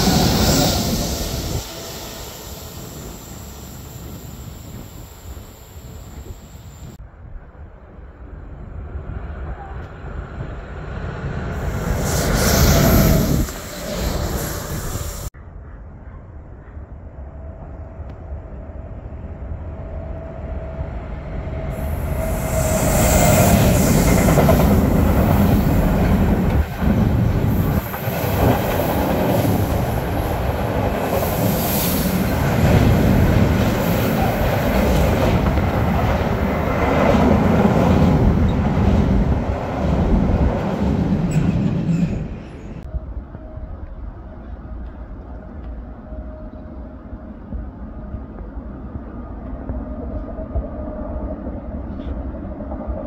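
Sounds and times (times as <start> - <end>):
freight train rumbling and clattering: 0.0 - 3.4, 20.9 - 46.5.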